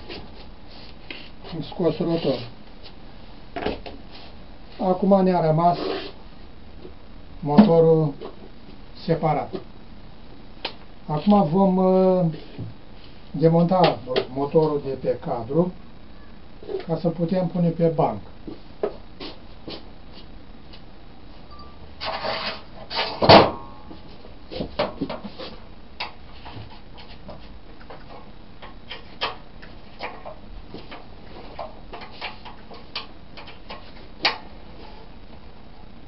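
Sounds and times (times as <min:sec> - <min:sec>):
metal scraping: 0:21.6 - 0:23.2.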